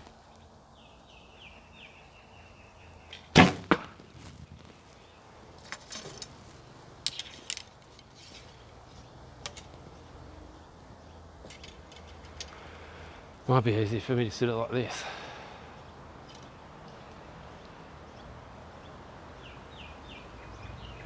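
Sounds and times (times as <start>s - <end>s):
arrow striking target: 3.2s - 4.1s.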